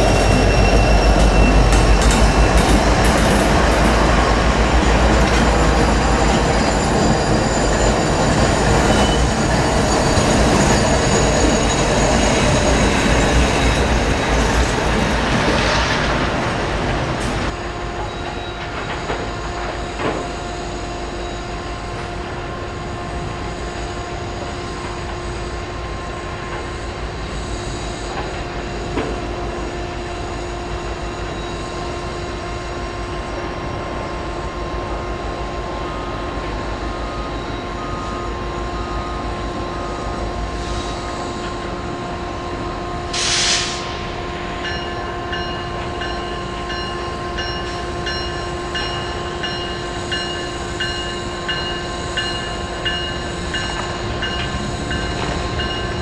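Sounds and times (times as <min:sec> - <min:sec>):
train engine drone: 0:00.0 - 0:56.0
short hiss: 0:43.2 - 0:44.0.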